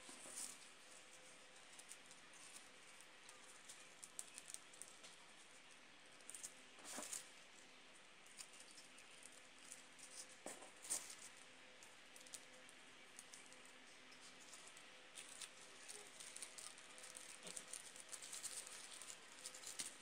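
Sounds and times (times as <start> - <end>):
tissue paper rustling: 14.3 - 20.0.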